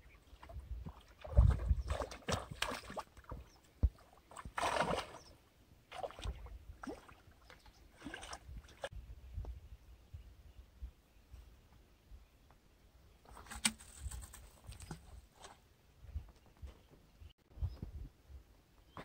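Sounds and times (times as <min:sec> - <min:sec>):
wind buffeting microphone: 0:00.5 - 0:02.1
bait splashing into water: 0:04.4 - 0:05.2.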